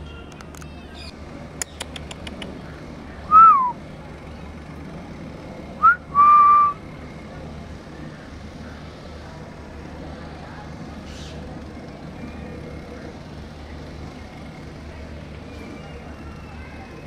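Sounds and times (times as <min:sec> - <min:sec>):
sharp clicks: 0:01.6 - 0:02.6
person whistling: 0:03.3 - 0:03.8, 0:05.8 - 0:06.8.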